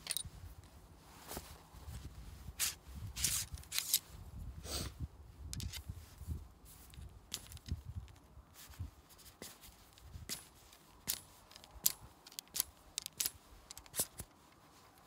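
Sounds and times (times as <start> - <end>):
ramrod clicking and scraping: 0.0 - 0.3, 2.6 - 4.0, 5.5 - 5.9, 9.4 - 15.0.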